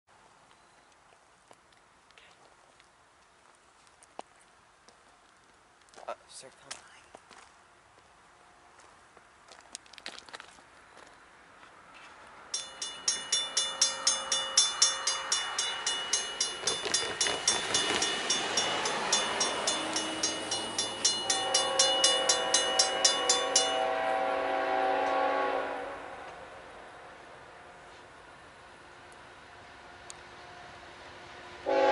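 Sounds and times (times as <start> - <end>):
crossing warning bell ringing: 12.5 - 24.8
locomotive horn chord: 13.7 - 26.4, 31.6 - 31.9.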